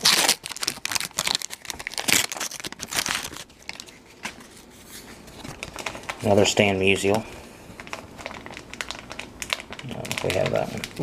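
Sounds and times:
wax paper wrapper tearing: 0:00.0 - 0:04.7, 0:07.8 - 0:11.0.

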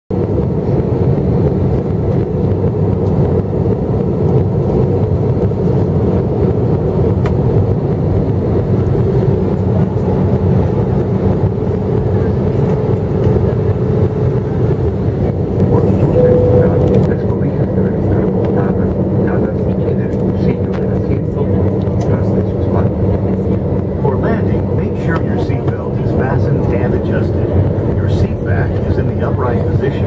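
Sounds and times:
jet engine rumble: 0:00.1 - 0:30.0
faint steady hum: 0:15.7 - 0:19.6.

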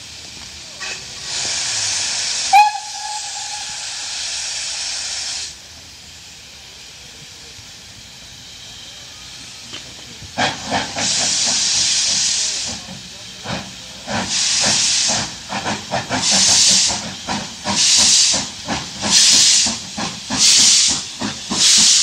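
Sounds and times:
locomotive steam puffs: 0:00.0 - 0:22.0
steam hissing: 0:00.0 - 0:22.0
steam whistle toot: 0:02.3 - 0:05.0.

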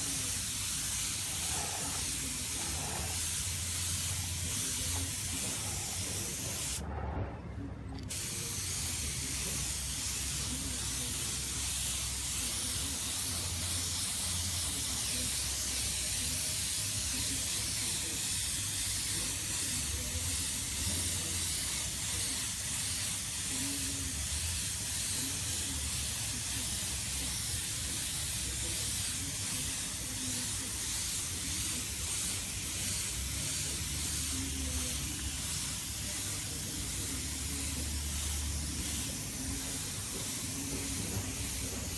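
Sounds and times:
spray gun hissing: 0:00.0 - 0:06.8, 0:08.1 - 0:41.9.

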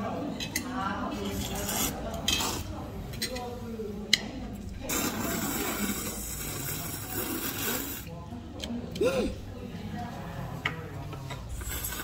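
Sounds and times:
person slurping noodles: 0:04.9 - 0:08.1, 0:11.6 - 0:12.0.

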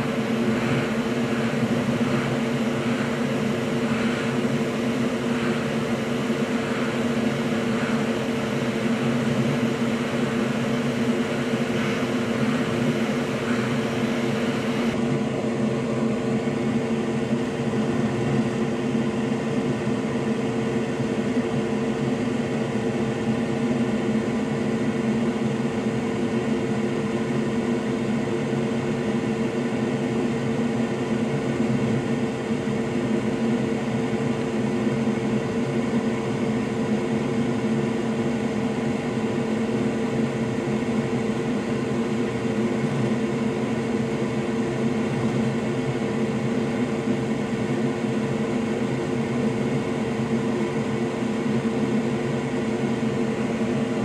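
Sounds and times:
electric blower whirring: 0:00.0 - 0:17.4.

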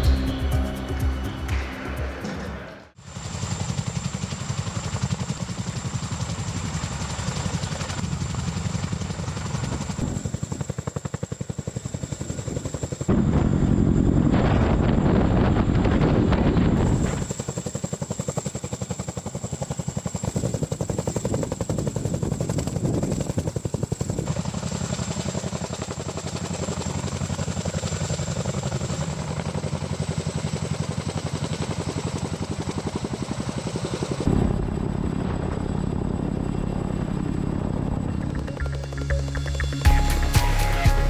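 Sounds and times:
helicopter rotor beat: 0:00.0 - 0:41.0
high whine: 0:34.3 - 0:41.0.

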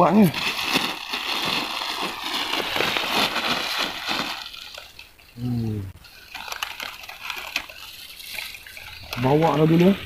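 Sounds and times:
plastic bag crinkling: 0:00.0 - 0:05.1, 0:06.0 - 0:10.0
man humming: 0:05.4 - 0:06.0.

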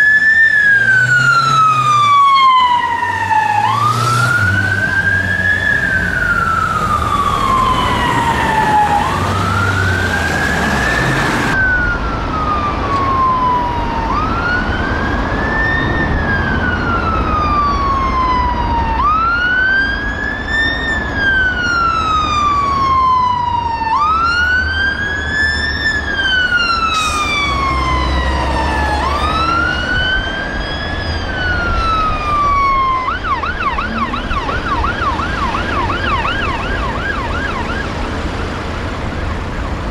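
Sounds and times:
fast yelp siren: 0:00.0 - 0:38.3
wail siren: 0:00.0 - 0:39.9.

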